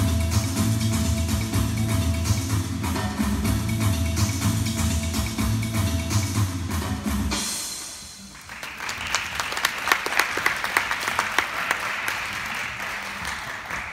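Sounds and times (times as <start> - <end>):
music with steady beat: 0.0 - 8.4
audience applauding: 8.3 - 13.9.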